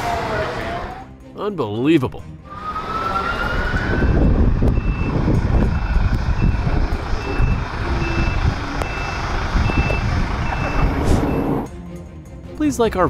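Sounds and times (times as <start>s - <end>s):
heavy vehicle and road rumble: 0.0s - 1.2s, 2.2s - 12.6s
truck reversing alarm beeping: 2.5s - 11.7s.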